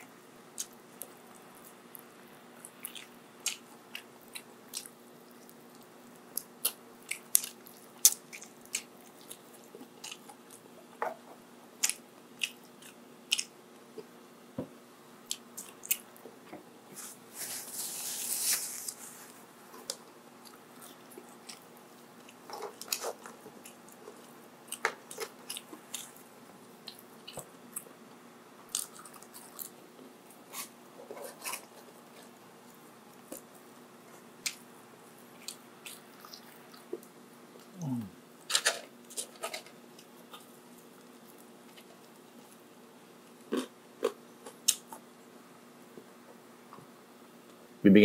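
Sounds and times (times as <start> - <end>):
person chewing and biting: 2.6 - 10.6, 19.9 - 26.2, 28.7 - 29.8, 43.3 - 45.1.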